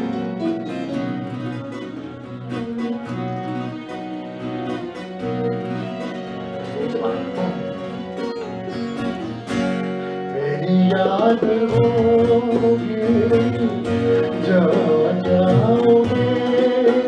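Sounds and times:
electric guitar: 0.0s - 17.0s
harmonium chords: 0.0s - 17.0s
man singing: 10.3s - 17.0s.

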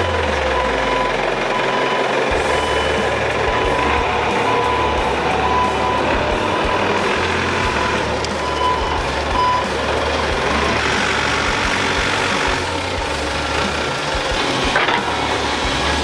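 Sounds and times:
forklift engine rumbling: 0.0s - 16.0s
warning beeper short beeps: 0.5s - 9.7s.

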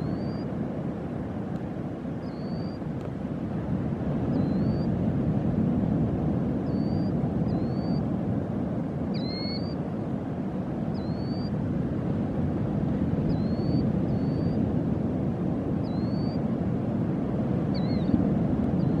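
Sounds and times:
small bird chirping: 0.0s - 0.4s, 2.2s - 2.8s, 6.7s - 8.0s, 9.2s - 9.8s, 10.9s - 11.5s, 13.3s - 14.6s, 17.7s - 18.2s.

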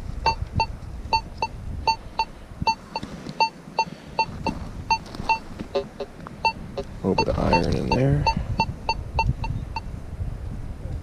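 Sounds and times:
metal detector short high beeps: 7.2s - 9.9s.

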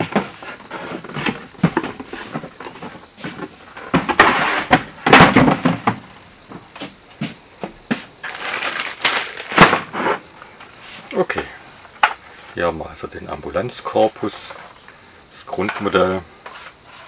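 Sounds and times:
cardboard packaging rustling: 8.2s - 10.0s.

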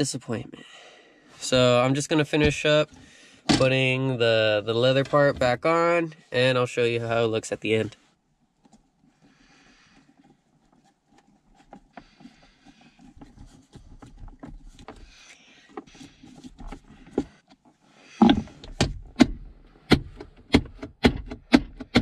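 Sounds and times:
rustling: 4.6s - 18.6s.

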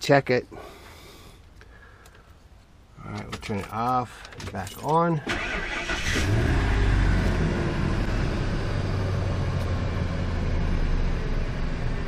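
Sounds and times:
van engine starting and idling: 5.2s - 12.0s.

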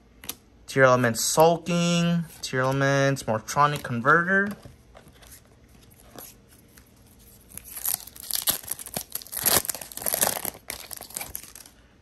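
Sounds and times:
foil wrapper tearing and crinkling: 7.4s - 11.7s.

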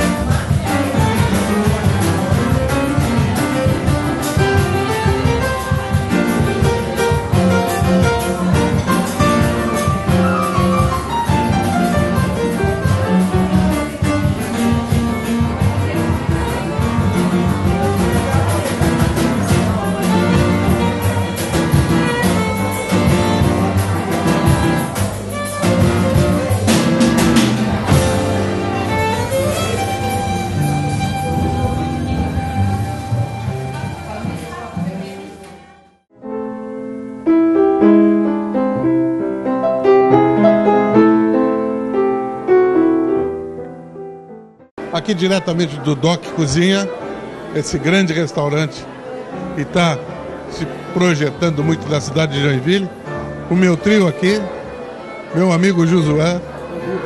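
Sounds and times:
plucked bass line: 0.0s - 35.1s
piano playing quick notes: 0.0s - 57.0s.

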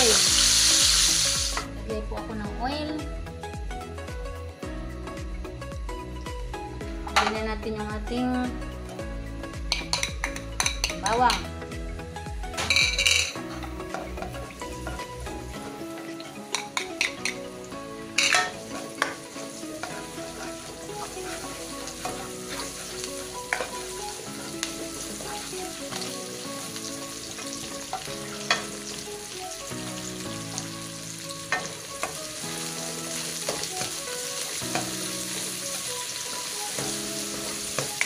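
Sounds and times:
garlic and onion sizzling in oil: 0.0s - 1.7s, 9.7s - 11.4s, 12.6s - 38.0s
metal spatula scraping a pan: 18.2s - 23.8s.

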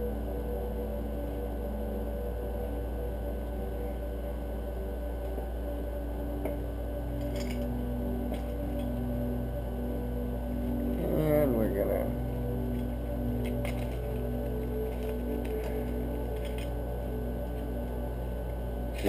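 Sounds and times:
steady low hum: 0.0s - 19.0s
engine parts clicking and clinking: 12.7s - 16.8s.

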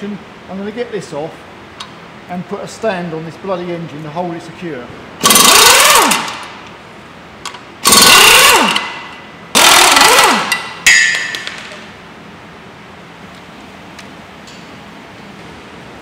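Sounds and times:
impact wrench hammering: 5.2s - 6.5s, 7.8s - 11.8s
sharp metallic clank: 10.4s - 11.9s.

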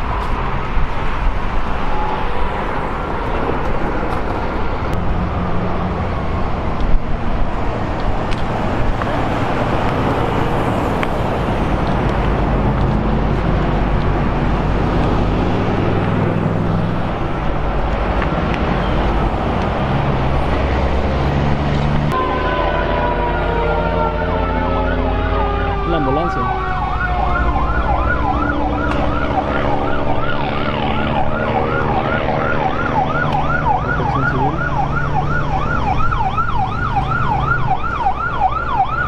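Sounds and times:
continuous rushing noise: 0.0s - 22.2s.

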